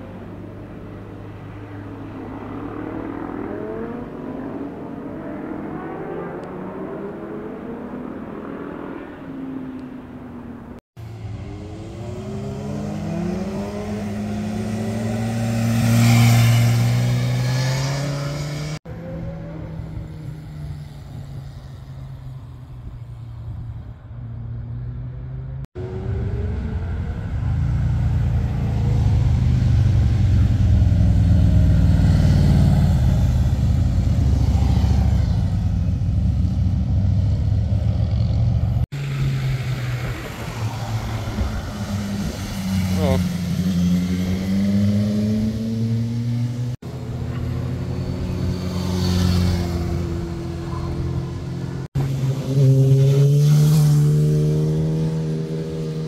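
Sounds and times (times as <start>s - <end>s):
sport bike approaching: 0.0s - 56.0s
motorcycle accelerating past: 1.6s - 9.6s, 11.1s - 22.5s, 24.6s - 56.0s
motorcycles deep engine rumble: 25.8s - 43.8s, 46.5s - 52.6s.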